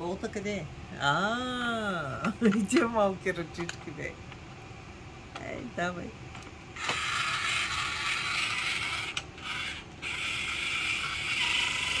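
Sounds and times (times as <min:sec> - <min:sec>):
toy drill whirring: 0:06.8 - 0:12.0.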